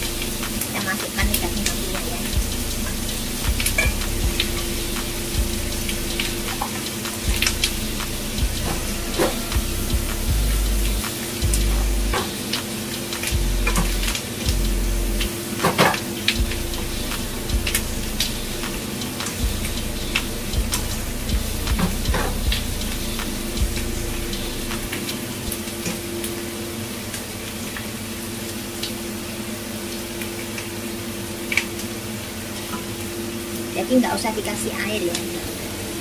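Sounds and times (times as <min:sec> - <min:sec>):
steady low hum: 0:00.0 - 0:26.5
meat sizzling in a wok: 0:00.1 - 0:31.5.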